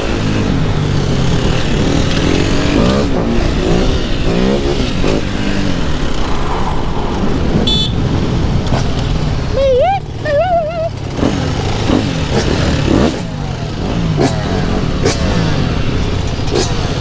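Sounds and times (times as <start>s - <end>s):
dirt bike engines revving: 0.0s - 17.0s
wind noise on microphone: 1.3s - 9.6s.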